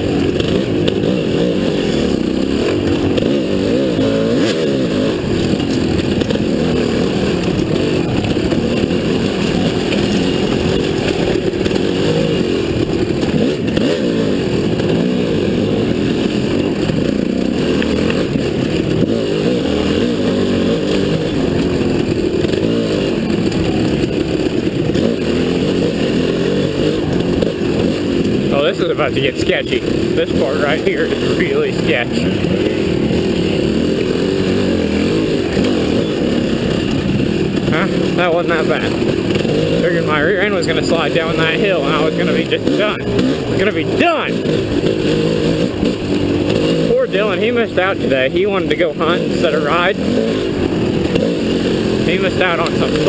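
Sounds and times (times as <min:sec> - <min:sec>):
dirt bike engine revving: 0:00.0 - 0:53.0.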